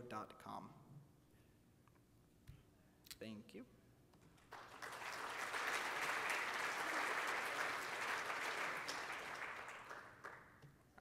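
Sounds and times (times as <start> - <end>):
audience applauding: 4.4 - 10.6.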